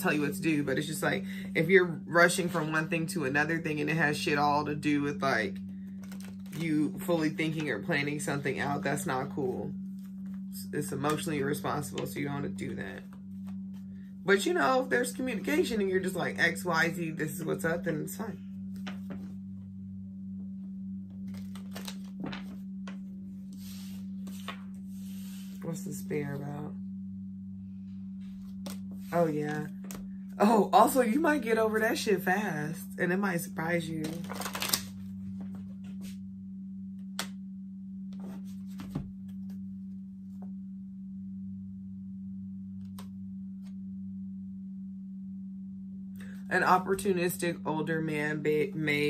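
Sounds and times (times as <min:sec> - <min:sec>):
steady low hum: 0:00.0 - 0:49.0
cards clicking and tapping: 0:21.3 - 0:22.6, 0:34.2 - 0:34.9.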